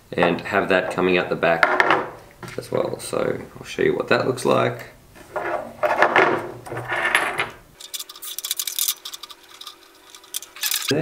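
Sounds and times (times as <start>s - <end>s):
plastic parts handling: 5.2s - 11.0s.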